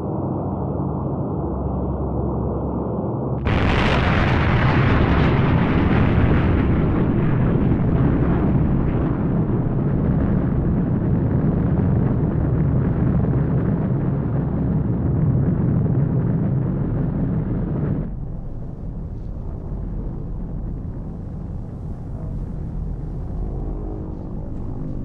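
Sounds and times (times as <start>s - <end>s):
deep rumble: 0.0s - 25.0s
nuclear explosion blast: 3.4s - 23.2s.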